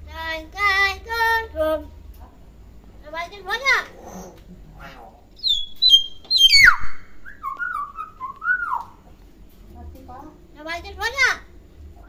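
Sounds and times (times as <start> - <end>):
myna whistling: 5.4 - 9.0.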